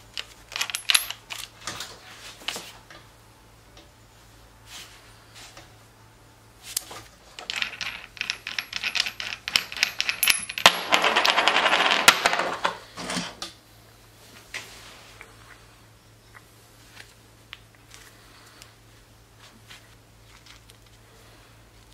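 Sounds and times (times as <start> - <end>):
small metal parts clinking: 0.1 - 1.6, 7.2 - 12.8.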